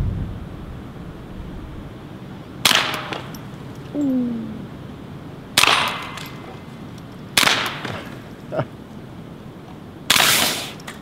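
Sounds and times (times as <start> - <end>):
pistol shots: 2.6 - 3.4, 5.6 - 6.5, 7.3 - 8.0, 10.1 - 10.7.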